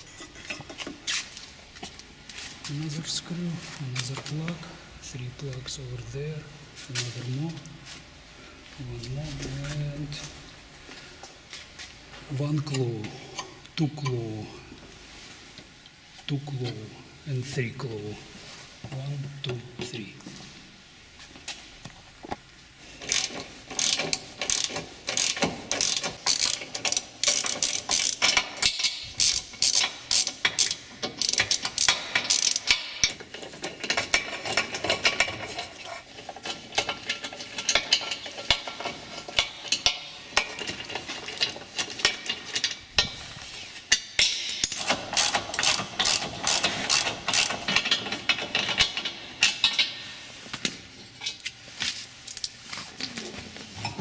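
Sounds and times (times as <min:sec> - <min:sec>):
ratchet wrench clicking: 0:23.0 - 0:33.2, 0:44.2 - 0:49.8.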